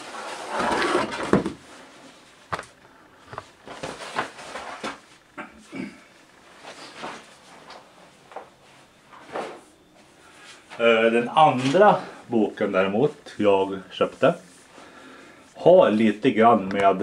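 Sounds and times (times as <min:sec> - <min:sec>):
books rustling: 0:00.0 - 0:05.2.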